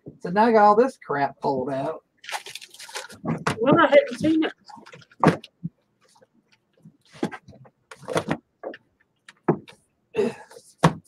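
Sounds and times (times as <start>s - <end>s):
art supplies rustling and knocking: 2.4s - 9.9s, 10.6s - 11.0s.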